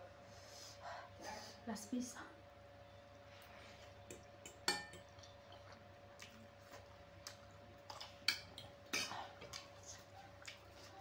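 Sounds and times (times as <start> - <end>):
faint steady hum: 0.0 - 11.0
close-mic chewing: 5.0 - 11.0.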